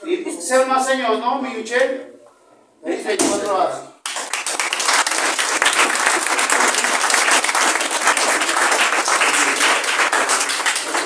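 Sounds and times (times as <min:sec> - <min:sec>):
people applauding: 0:04.0 - 0:11.0.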